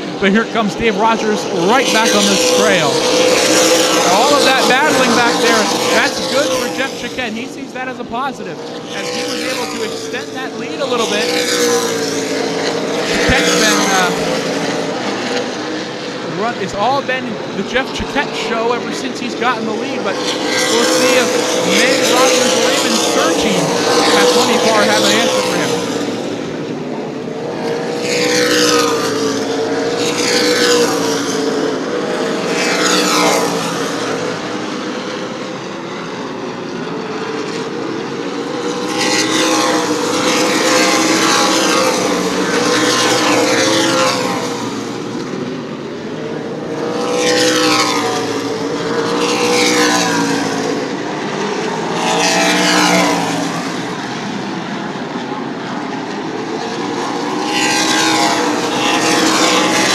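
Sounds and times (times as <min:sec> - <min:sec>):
engine drone: 0:00.0 - 0:59.9
race cars passing: 0:00.0 - 0:59.9.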